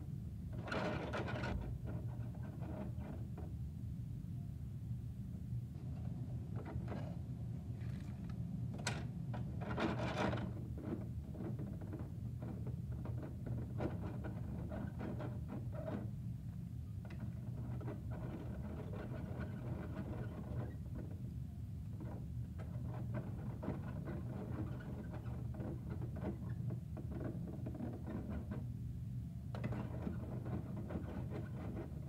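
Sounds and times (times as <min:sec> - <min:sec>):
steady low hum: 0:00.0 - 0:18.7.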